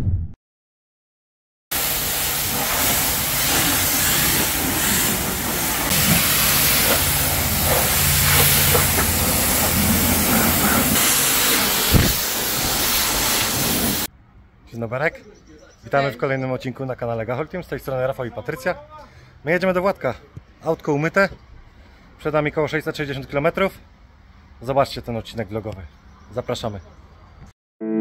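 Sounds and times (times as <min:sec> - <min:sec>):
pressure washer spraying car: 0:01.7 - 0:14.1.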